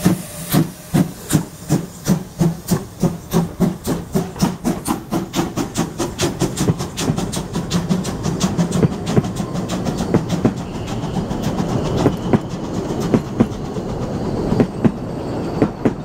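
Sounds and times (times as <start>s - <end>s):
steam locomotive chuffing: 0.0s - 16.0s
train wheels clicking over rail joints: 0.0s - 16.0s.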